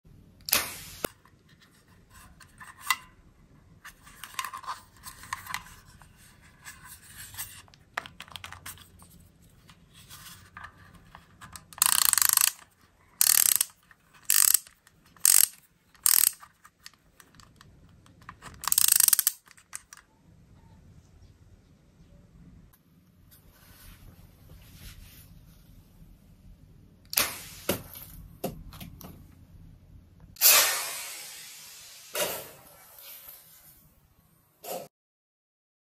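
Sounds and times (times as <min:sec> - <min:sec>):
toy launcher ratcheting whirs: 0:00.4 - 0:01.2, 0:11.4 - 0:17.6, 0:18.3 - 0:20.0, 0:27.1 - 0:27.8, 0:30.4 - 0:33.1.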